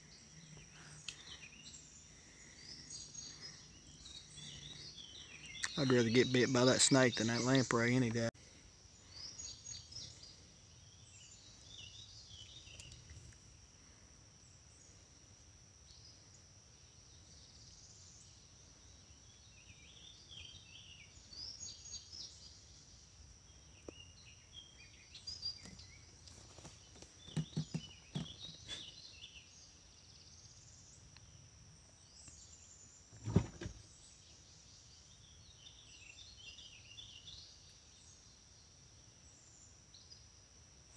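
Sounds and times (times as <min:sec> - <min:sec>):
birds chirping and singing: 0:00.0 - 0:08.3, 0:09.0 - 0:13.1, 0:23.6 - 0:30.8
soft knocks: 0:27.3 - 0:28.5
loud thump: 0:33.2 - 0:33.8.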